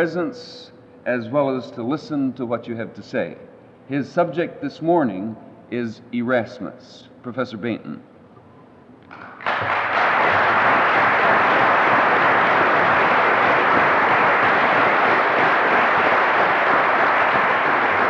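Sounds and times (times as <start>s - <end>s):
audience applauding: 9.1s - 18.0s.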